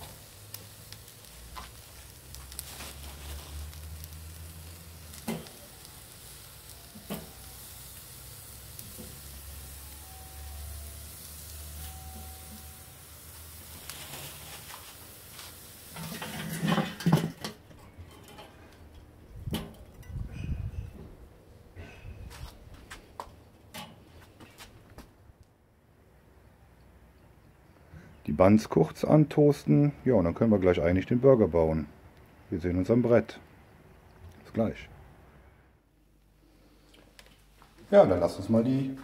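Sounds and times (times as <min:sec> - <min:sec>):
food sizzling on a grill: 0:00.0 - 0:17.7
metal lid clattering shut: 0:16.0 - 0:18.5.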